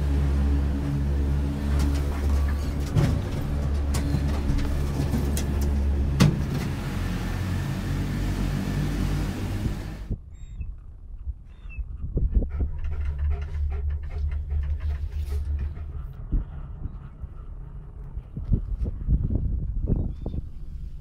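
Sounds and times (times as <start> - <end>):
gondola lift machinery humming: 0.0 - 10.2, 12.7 - 21.0
cabin riding cable: 0.0 - 21.0
machinery knocks and clunk: 1.6 - 6.8.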